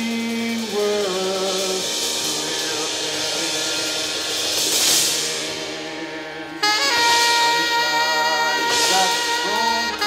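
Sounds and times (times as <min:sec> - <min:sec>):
cymbals crashing: 0:00.0 - 0:10.0
low steady drone: 0:00.0 - 0:10.0
person singing: 0:00.0 - 0:10.0.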